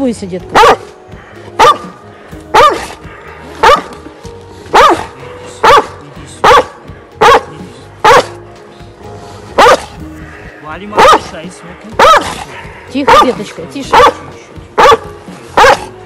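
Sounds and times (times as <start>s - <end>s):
large dog barking: 0.5s - 3.0s, 3.6s - 4.0s, 4.6s - 8.4s, 9.5s - 10.0s, 10.9s - 16.0s.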